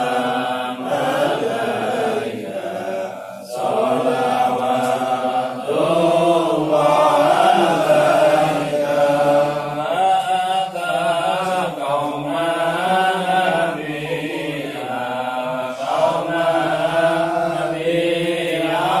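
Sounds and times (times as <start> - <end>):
men chanting together: 0.0 - 19.0.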